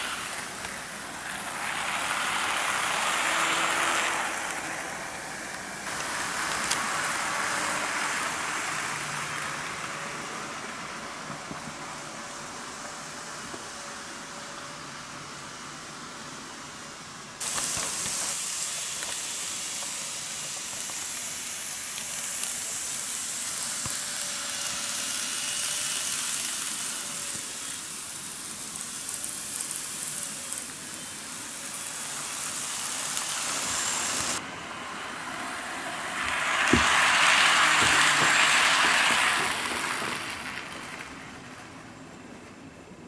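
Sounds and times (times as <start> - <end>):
wheels clicking over rail joints: 0.0 - 12.1, 35.2 - 42.6
hiss of model train wheels: 0.0 - 41.8.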